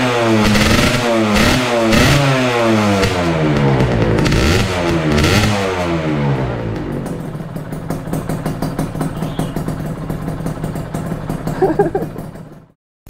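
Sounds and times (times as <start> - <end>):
motorcycle engine idling: 2.6 - 12.8.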